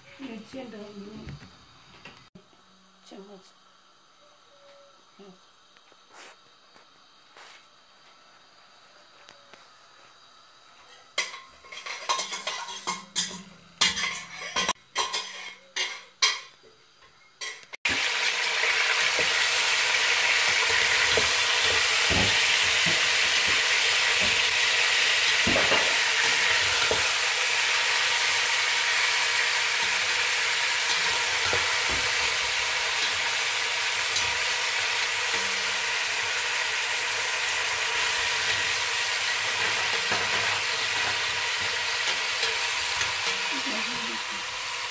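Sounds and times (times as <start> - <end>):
spatula scraping pot: 10.9 - 16.0
chicken frying in oil: 17.4 - 44.9.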